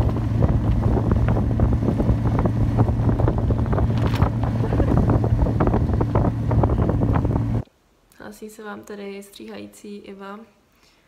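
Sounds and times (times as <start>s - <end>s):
sled rattling and knocking: 0.0s - 7.6s
snowmobile engine running: 0.0s - 7.6s
wind noise on microphone: 0.0s - 7.6s.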